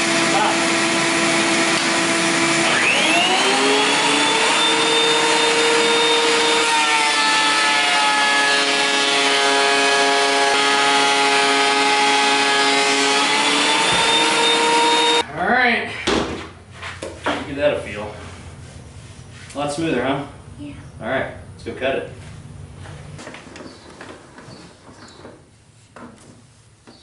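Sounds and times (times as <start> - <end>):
thickness planer planing board: 0.0 - 15.2.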